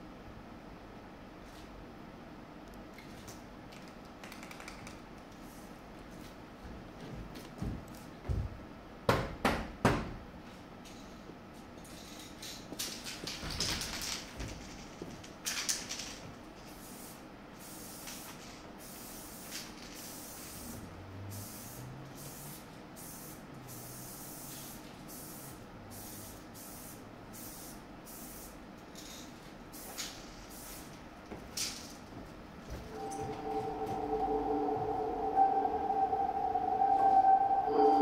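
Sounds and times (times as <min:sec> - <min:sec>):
spray paint can hissing: 0:16.7 - 0:20.8, 0:21.4 - 0:30.9.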